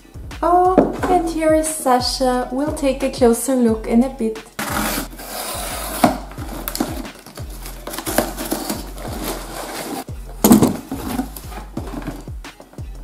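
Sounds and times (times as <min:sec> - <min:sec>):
background music with steady beat: 0:00.0 - 0:13.0
boxes rustling and scraping: 0:04.6 - 0:12.7.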